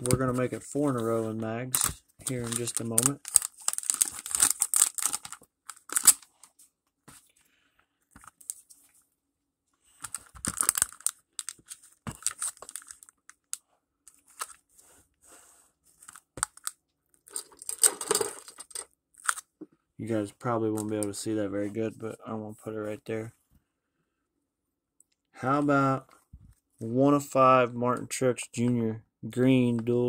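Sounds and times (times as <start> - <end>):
plastic sleeve crinkling: 1.7 - 6.4, 10.0 - 14.6.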